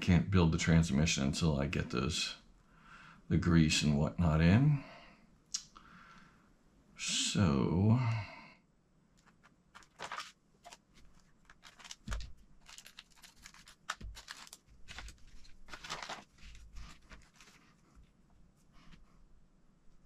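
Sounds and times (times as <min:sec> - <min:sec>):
plastic bags crinkling: 0:09.8 - 0:17.8.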